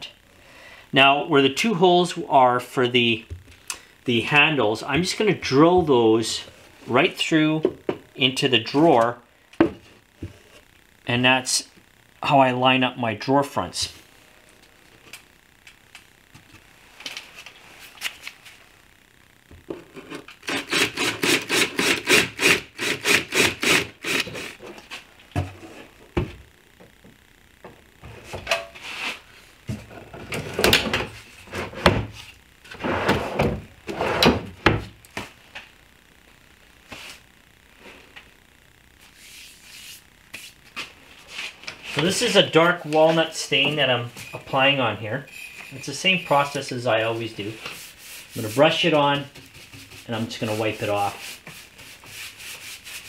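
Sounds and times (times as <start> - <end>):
drawers sliding open and shut: 32.7 - 34.7.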